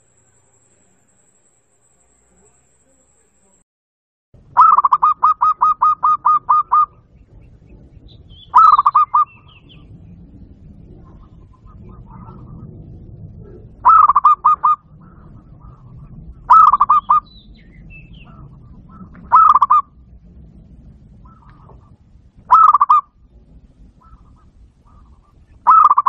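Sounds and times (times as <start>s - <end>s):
dove cooing: 4.6s - 7.1s, 8.4s - 9.9s, 13.4s - 17.3s, 18.1s - 19.9s, 21.2s - 23.0s, 24.0s - 26.0s.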